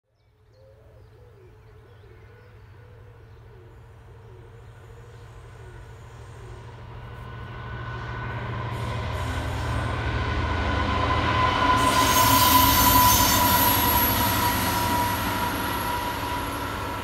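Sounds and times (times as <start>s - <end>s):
low rumble of train: 0.2s - 17.0s
pigeon cooing: 0.6s - 6.7s.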